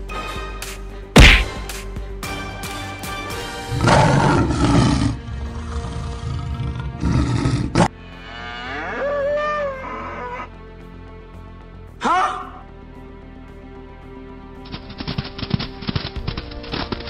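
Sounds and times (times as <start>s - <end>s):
background music: 0.0s - 17.0s
cow mooing: 3.7s - 10.5s
lion roaring: 3.7s - 10.5s.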